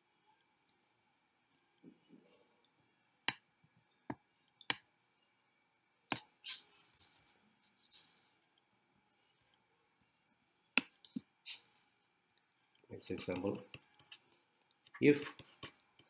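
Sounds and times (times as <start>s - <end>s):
soft clicks and taps: 6.1s - 6.3s.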